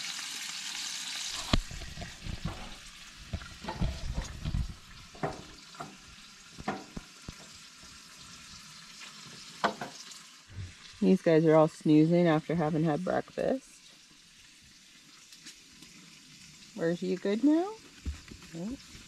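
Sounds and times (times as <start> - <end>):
bacon sizzling: 0.0 - 19.0
pops and clicks: 1.3 - 5.4
low thumps: 10.5 - 10.9.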